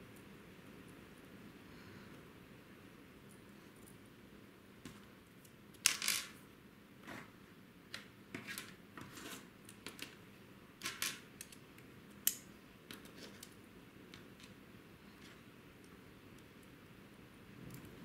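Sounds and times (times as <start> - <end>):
small parts and tools clicking: 10.8 - 14.6.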